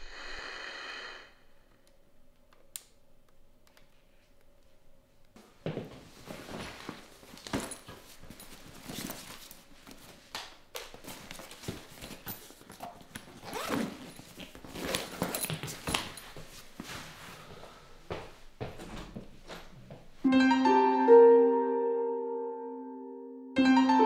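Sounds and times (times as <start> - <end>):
cloth rustling: 5.8 - 10.3, 10.9 - 17.6.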